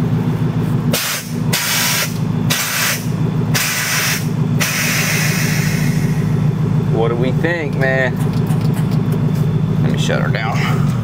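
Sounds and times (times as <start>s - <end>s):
engine idling hum: 0.0s - 11.0s
air valves hissing: 0.9s - 6.3s.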